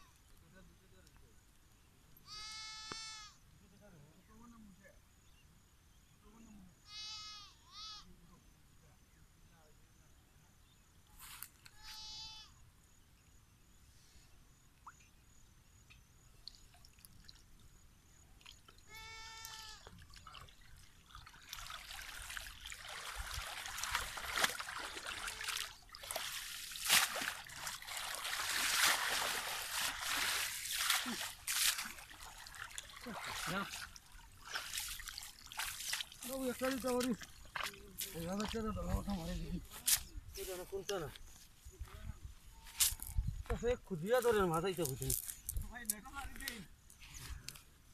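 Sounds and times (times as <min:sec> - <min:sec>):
farm animal bleating: 0:02.2 - 0:03.4, 0:06.8 - 0:08.1, 0:11.8 - 0:12.5, 0:18.9 - 0:19.9
water splashing and trickling: 0:16.3 - 0:41.1, 0:44.0 - 0:46.6.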